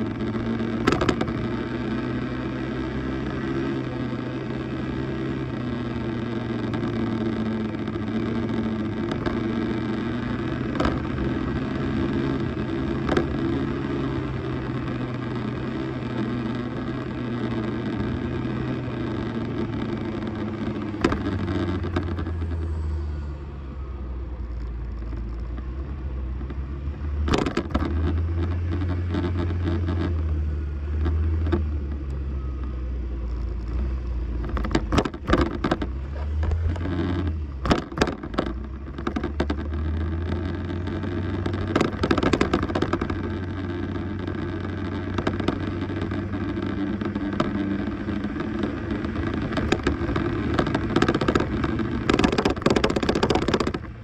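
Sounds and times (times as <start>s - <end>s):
road and wind noise: 0.0s - 54.0s
scooter engine running: 0.0s - 54.0s
sharp knocks and rattles: 34.4s - 40.7s, 49.2s - 54.0s.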